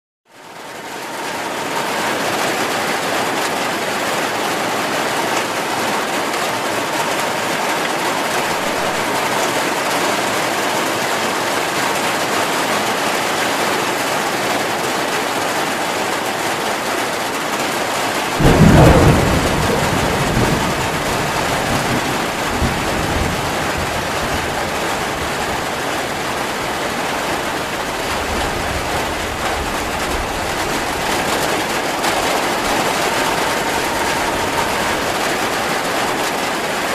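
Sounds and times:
heavy rain: 0.3 - 36.9
thunder rumbling: 1.1 - 10.1, 18.3 - 36.9.

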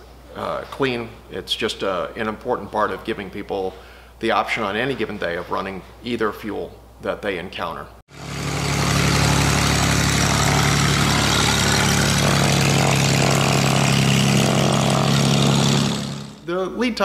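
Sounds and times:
propeller aircraft engine: 8.1 - 16.4.

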